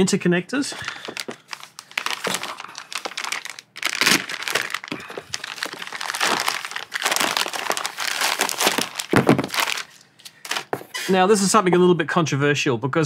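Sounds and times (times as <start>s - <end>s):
plastic bag crinkling: 0.7s - 10.7s.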